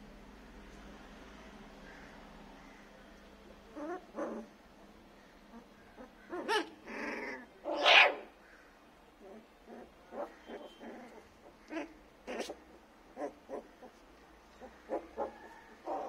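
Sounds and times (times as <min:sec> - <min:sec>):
puppies barking: 0:05.5 - 0:08.4, 0:09.3 - 0:14.0, 0:14.6 - 0:16.0.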